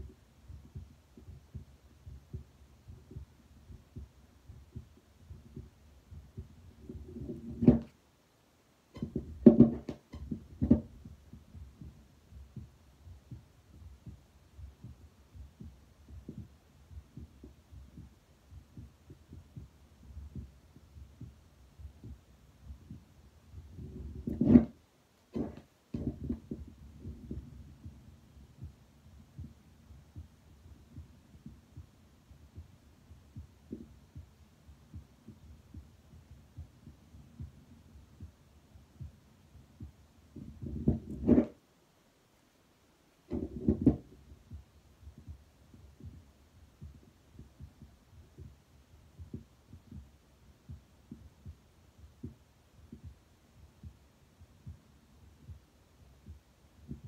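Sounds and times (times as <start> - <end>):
heartbeat through stethoscope: 0.0 - 8.0, 8.9 - 24.8, 25.4 - 41.6, 43.3 - 57.0
low steady hum: 0.0 - 57.0
stethoscope knocking and scraping: 6.4 - 8.0, 9.0 - 11.1, 23.8 - 27.5, 40.4 - 41.6.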